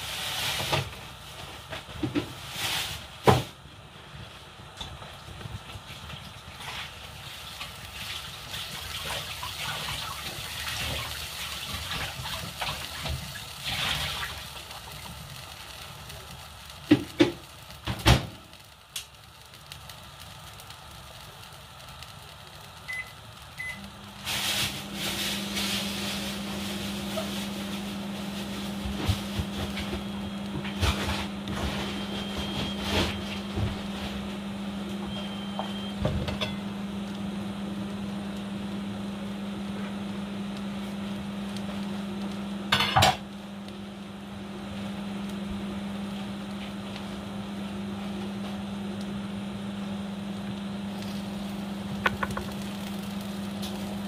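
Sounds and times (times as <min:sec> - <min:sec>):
steady low hum: 0:18.4 - 0:54.0.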